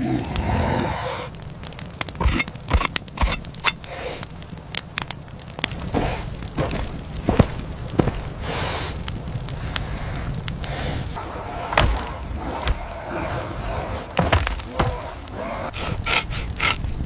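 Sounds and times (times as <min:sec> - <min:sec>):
campfire crackling and popping: 0:00.0 - 0:17.0.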